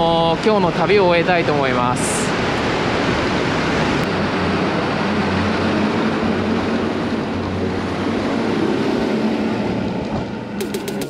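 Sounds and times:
wind and road noise: 0.0s - 11.0s.

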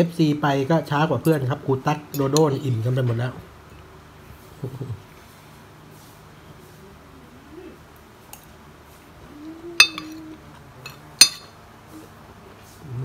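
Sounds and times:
utensils clinking on dishes: 9.8s - 11.6s.

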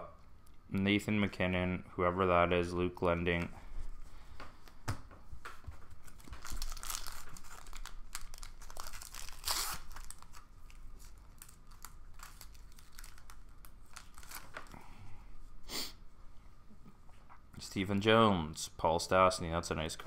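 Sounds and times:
foil wrapper crinkling and tearing: 6.0s - 14.8s.

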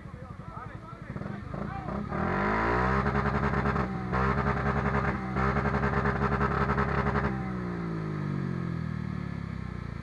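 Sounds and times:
off-road engine revving: 1.0s - 8.6s.

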